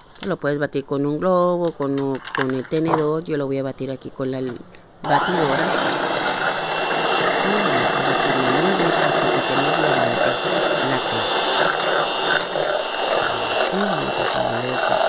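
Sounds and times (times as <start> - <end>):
electric hand mixer whipping: 5.1 - 15.0.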